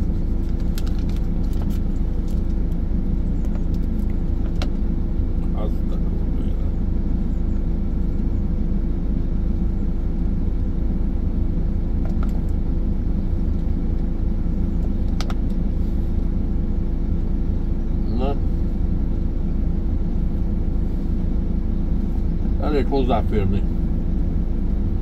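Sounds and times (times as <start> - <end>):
engine idling: 0.0 - 25.0.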